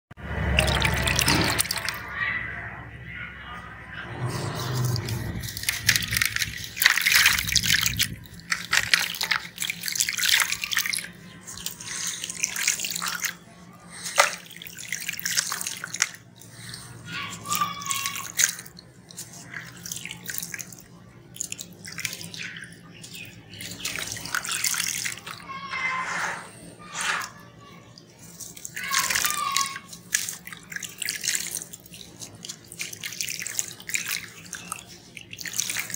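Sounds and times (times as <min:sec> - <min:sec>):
grit splashing into water: 0:00.3 - 0:02.0, 0:04.6 - 0:25.5, 0:28.3 - 0:35.9.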